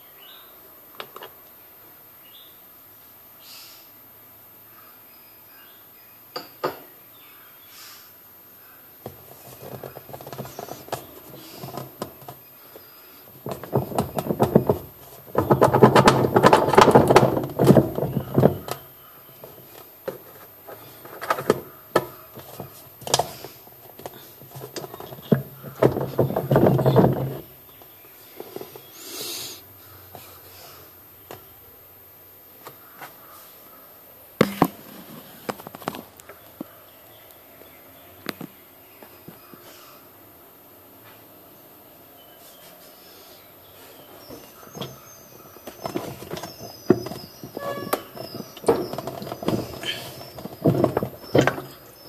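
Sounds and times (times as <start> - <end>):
plastic rubbing and scraping: 9.1 - 12.5, 13.3 - 29.0, 44.2 - 52.0.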